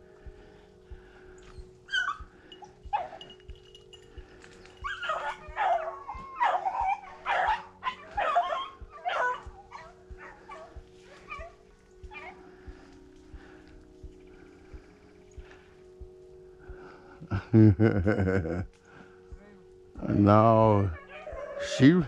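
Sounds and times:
hounds barking: 1.5 - 3.4, 4.3 - 13.7, 20.7 - 22.0.

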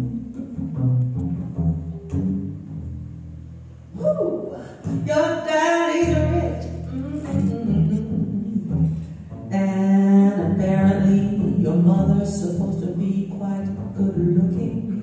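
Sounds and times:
double bass: 0.0 - 15.0
woman singing: 4.0 - 8.8.

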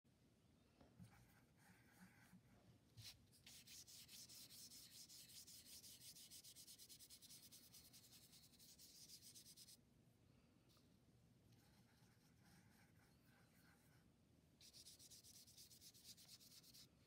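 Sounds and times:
paintbrush scrubbing on paper: 3.0 - 9.8, 11.6 - 14.0, 14.6 - 17.0.

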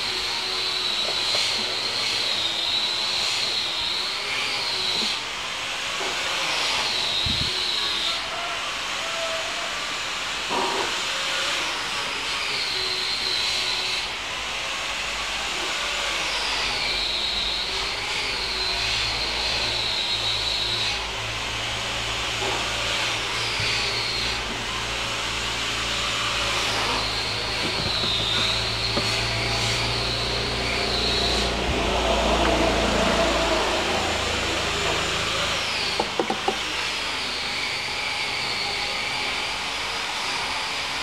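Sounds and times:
high wavering whine: 16.3 - 36.3
rushing machine noise: 16.5 - 37.9.

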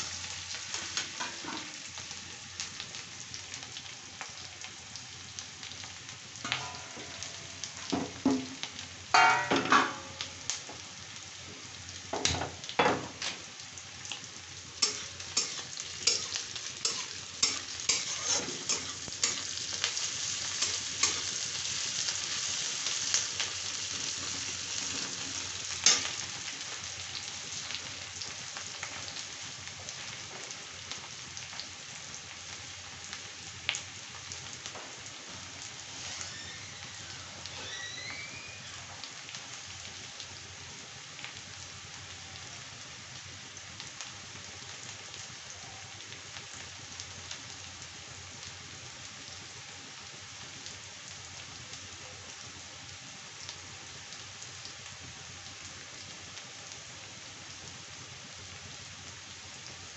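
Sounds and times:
onions sizzling in hot oil: 0.0 - 59.9
metal spatula scraping pan: 14.8 - 19.5.

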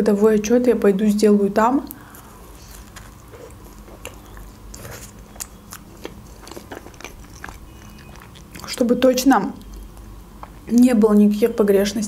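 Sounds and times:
person biting and chewing pizza: 2.0 - 9.0.

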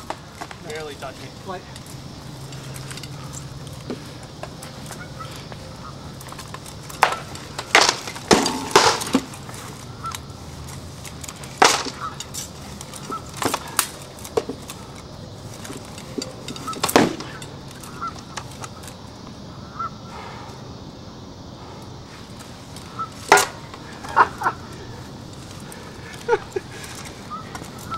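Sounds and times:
sword blows on shields and armour: 7.0 - 9.3, 11.6 - 12.3, 16.2 - 17.4.

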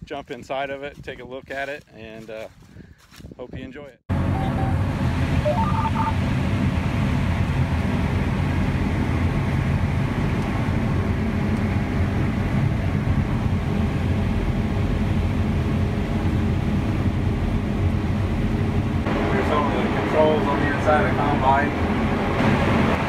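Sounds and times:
combine harvester engine drone: 4.1 - 23.0
short electronic beeps: 4.3 - 4.8, 5.4 - 6.2.

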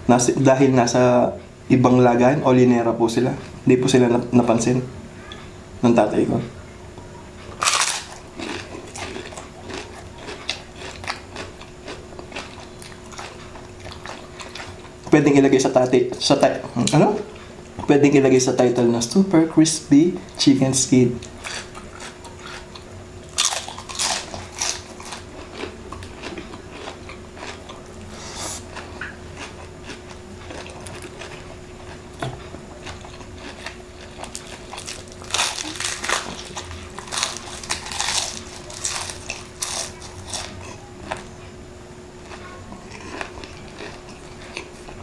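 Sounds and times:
crispy chicken skin crunching: 7.6 - 14.7, 23.3 - 27.6, 32.4 - 41.2.

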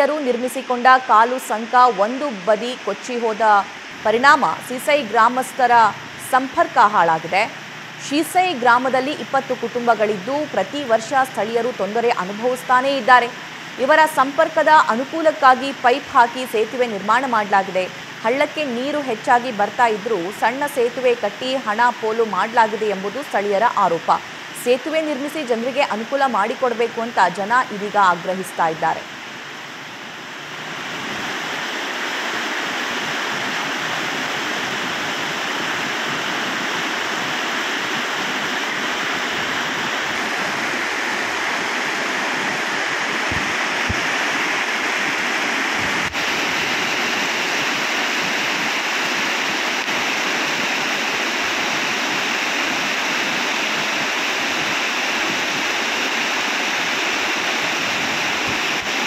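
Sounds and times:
stream rushing over rapids: 0.0 - 59.0.

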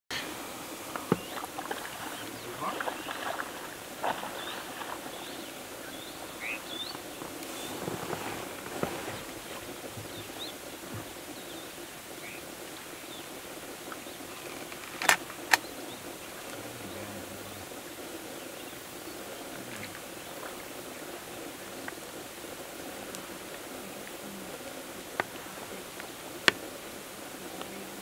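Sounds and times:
outdoor background hiss: 0.1 - 28.0
sharp clicks: 14.6 - 15.7.

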